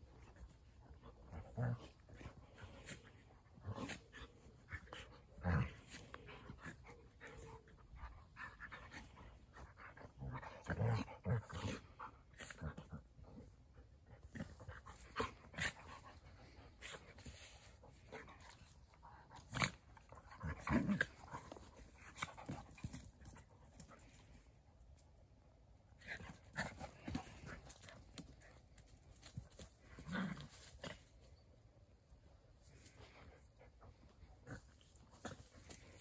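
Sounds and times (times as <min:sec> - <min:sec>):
dogs growling and grunting: 0:00.1 - 0:24.1, 0:29.7 - 0:31.1, 0:32.9 - 0:36.0.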